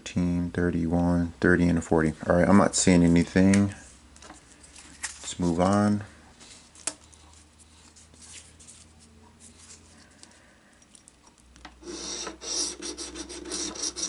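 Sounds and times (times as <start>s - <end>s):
paper tickets rustling: 4.5s - 6.0s
scratch-off ticket rasping: 11.8s - 14.0s.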